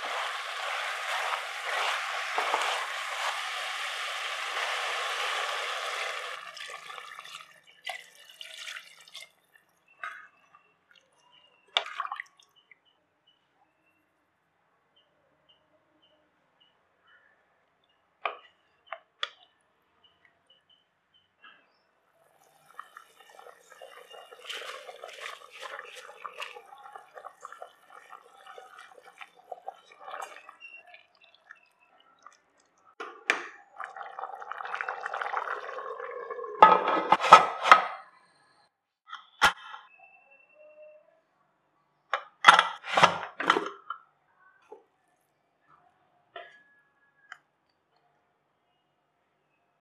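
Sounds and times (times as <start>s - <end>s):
wooden spatula stirring and scraping: 0.0s - 6.4s, 22.4s - 30.6s
gravy bubbling: 0.0s - 8.4s, 22.3s - 37.6s.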